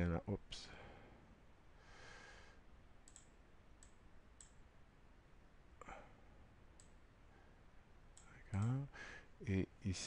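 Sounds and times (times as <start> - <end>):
computer mouse clicks: 3.0 - 4.6, 6.7 - 7.0, 8.1 - 8.8.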